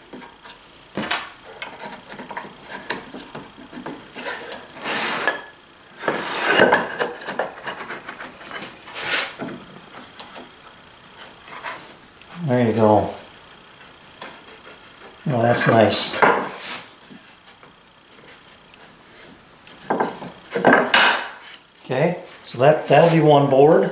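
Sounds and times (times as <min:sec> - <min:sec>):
wooden boards rubbing: 0:00.0 - 0:10.5, 0:13.0 - 0:21.6
wooden boards knocking: 0:19.9 - 0:21.4.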